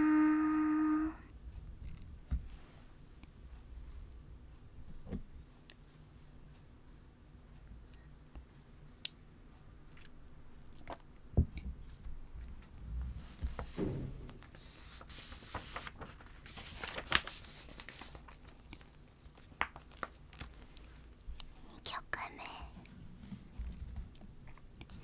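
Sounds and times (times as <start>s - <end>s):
soft rustling: 2.3s - 6.2s, 11.8s - 21.6s, 22.8s - 25.0s.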